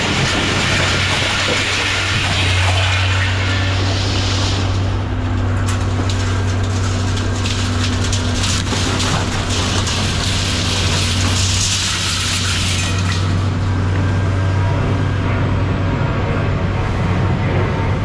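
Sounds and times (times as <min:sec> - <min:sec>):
scrap metal crunching and clicking: 0:00.0 - 0:14.0
heavy machine humming: 0:00.0 - 0:18.0.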